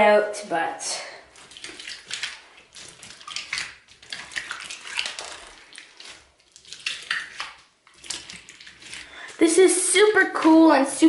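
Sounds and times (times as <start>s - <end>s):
slime squelching with pops: 1.3s - 9.4s.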